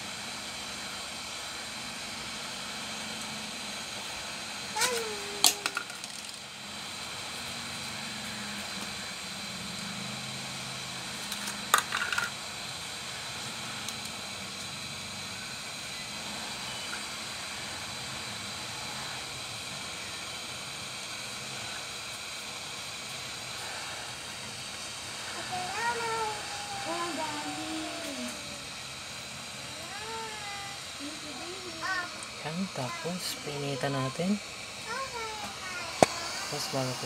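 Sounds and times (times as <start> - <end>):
background hiss: 9.6 - 37.0.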